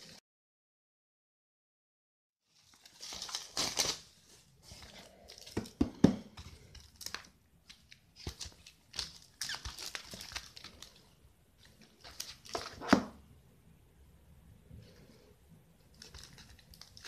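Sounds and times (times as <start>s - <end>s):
packaging rustling and crinkling: 2.5s - 13.1s, 15.8s - 17.0s.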